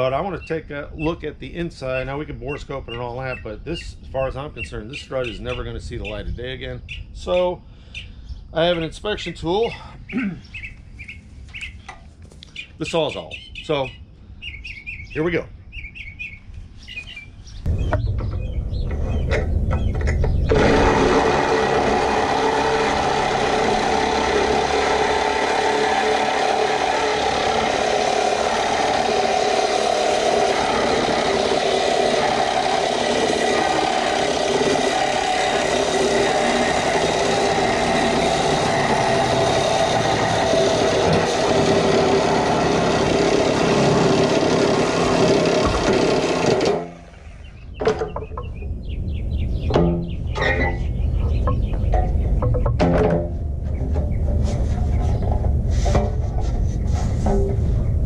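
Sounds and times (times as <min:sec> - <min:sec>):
reciprocating saw cutting metal: 0:20.1 - 0:47.6.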